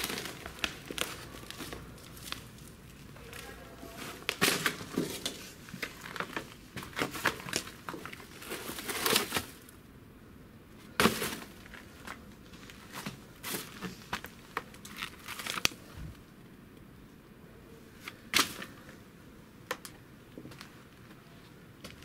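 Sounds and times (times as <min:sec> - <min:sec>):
paper rustling and crinkling: 0:00.0 - 0:09.7, 0:10.9 - 0:16.2.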